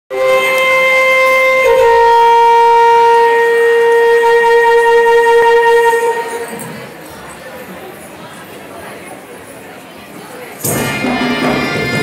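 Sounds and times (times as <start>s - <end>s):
wind instrument holding a note: 0.1s - 6.8s.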